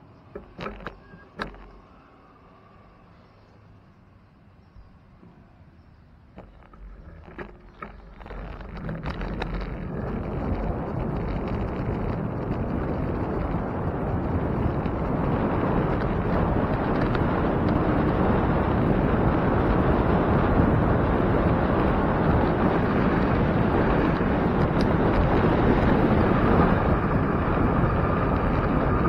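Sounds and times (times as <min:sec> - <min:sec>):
wind rushing over microphone: 0:06.4 - 0:29.0.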